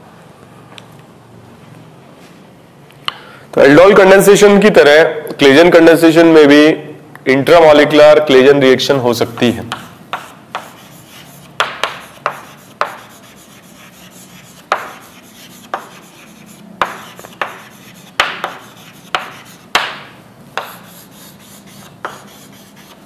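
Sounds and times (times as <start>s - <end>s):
scratchy writing strokes on a board: 9.4s - 23.0s.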